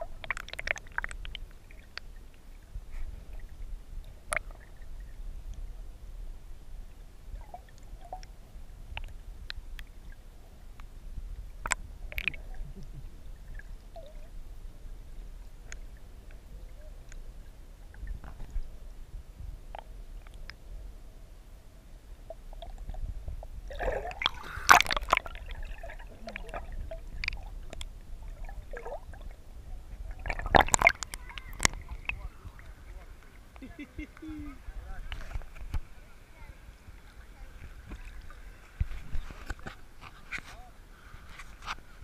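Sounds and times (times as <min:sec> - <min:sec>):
water gurgling and splashing: 0:00.0 - 0:05.3, 0:11.5 - 0:14.4, 0:22.3 - 0:39.6
small underwater clicks and ticks: 0:00.0 - 0:05.7, 0:07.3 - 0:14.4, 0:15.4 - 0:17.3, 0:17.9 - 0:18.8, 0:19.7 - 0:20.6, 0:22.2 - 0:29.3, 0:29.9 - 0:34.3, 0:35.1 - 0:35.9, 0:36.8 - 0:40.6
underwater river rumble: 0:00.0 - 0:42.0.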